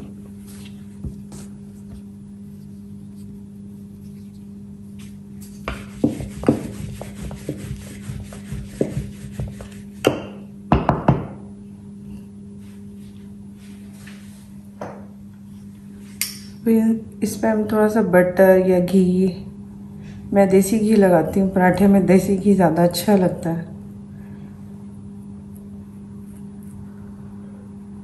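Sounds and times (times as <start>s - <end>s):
rolling pin knocking and rubbing: 5.6s - 11.4s.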